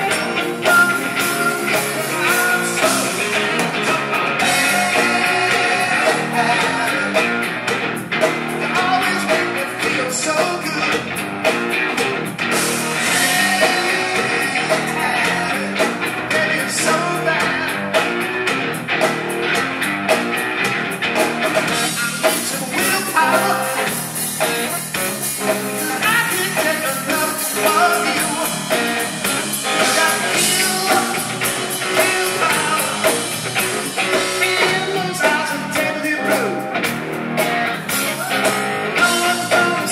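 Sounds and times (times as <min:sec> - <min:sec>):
amplified electric guitar: 0:00.0 - 0:39.9
drum kit: 0:00.0 - 0:39.9.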